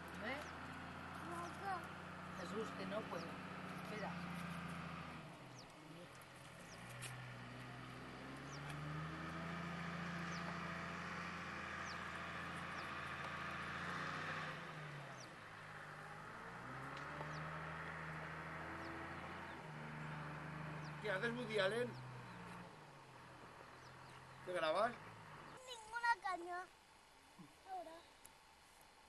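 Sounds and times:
engine hum: 0.0 - 29.0
bird chirps: 8.1 - 8.8, 10.2 - 10.7, 11.8 - 13.0, 23.5 - 24.5.

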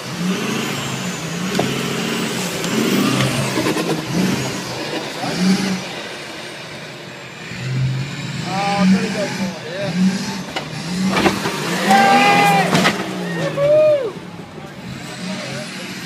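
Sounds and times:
tyres spinning in dirt: 0.0 - 6.6, 8.5 - 16.0
pickup engine revving: 0.0 - 16.0.

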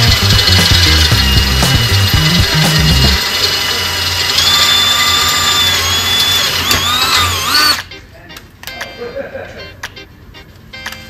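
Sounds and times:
cordless drill whining through metal: 0.0 - 7.9.

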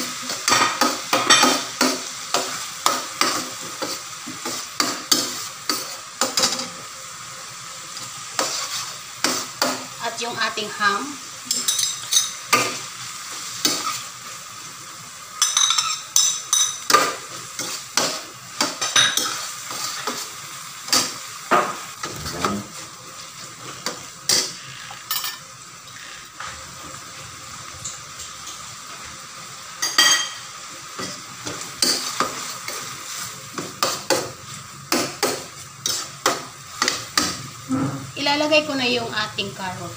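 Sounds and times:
food sizzling in a pan: 0.0 - 39.9
metal spatula scraping a pan: 8.4 - 9.7, 17.6 - 20.3.

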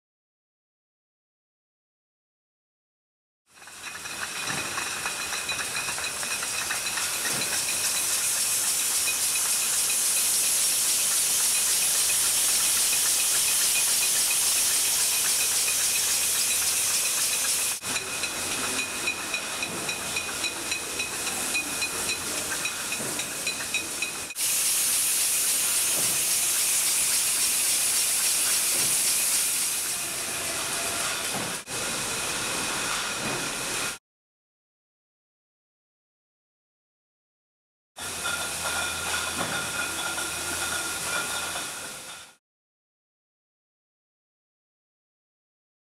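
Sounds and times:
bottling machinery hissing: 3.6 - 34.0, 38.0 - 42.4.

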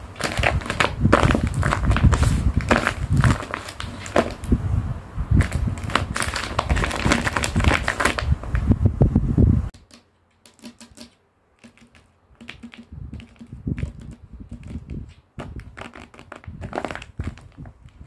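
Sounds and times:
nails tapping and scratching: 0.0 - 4.5, 9.7 - 18.0
taped paper crinkling: 0.0 - 4.5, 5.4 - 8.6, 9.8 - 18.0.

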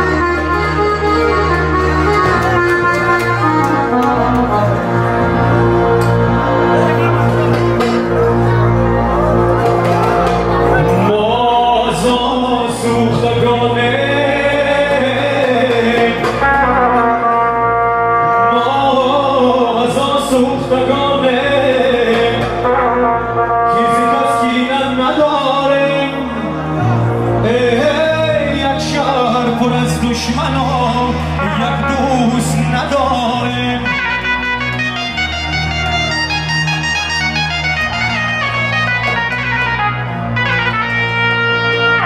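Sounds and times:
keyboard brass-like melody with bass: 0.0 - 42.0
man singing into a microphone: 10.8 - 34.6.

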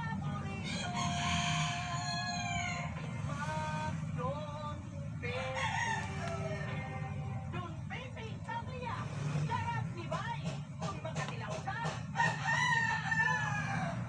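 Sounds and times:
steady low hum: 0.0 - 14.0
rooster crowing: 0.4 - 3.8, 5.2 - 7.3, 12.0 - 14.0.

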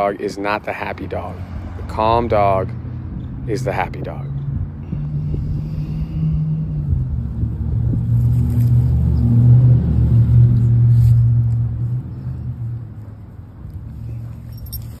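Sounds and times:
low engine hum: 2.8 - 15.0.

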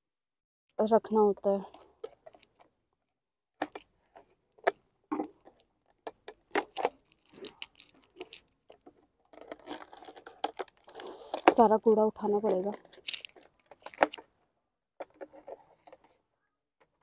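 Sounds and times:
plastic bottles clicking and crinkling: 3.6 - 14.4, 15.0 - 16.2.

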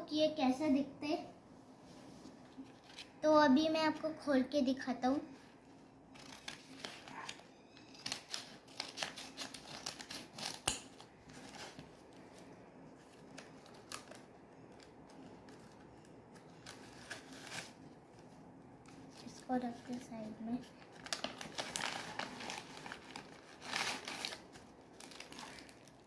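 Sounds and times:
paper rustling and crinkling: 2.3 - 3.2, 5.6 - 26.0
scissors cutting paper: 6.1 - 11.8.

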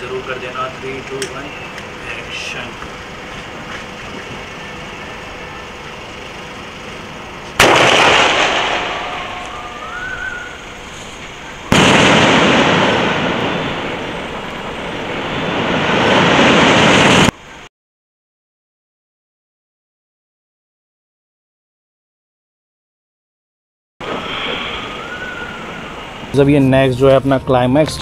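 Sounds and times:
firework whistle rising: 0.9 - 17.3, 24.0 - 26.6
firework blast: 6.5 - 17.7, 24.0 - 26.9.

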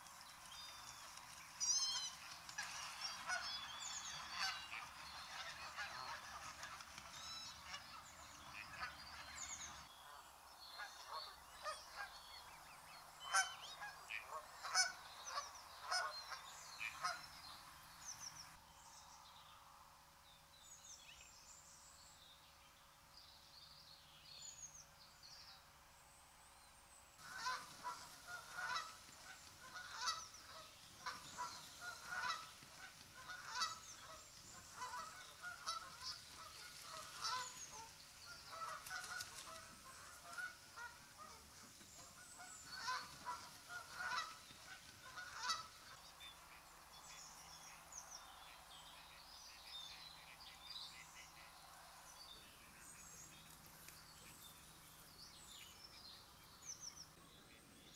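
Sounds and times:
geese honking: 1.6 - 9.8, 13.3 - 17.3, 27.2 - 46.1.

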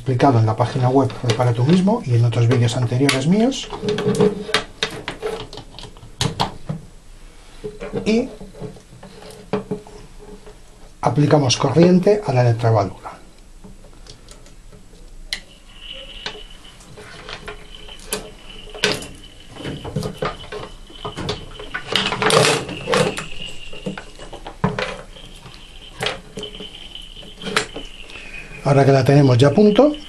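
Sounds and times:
faint thin high whine: 7.0 - 30.0.

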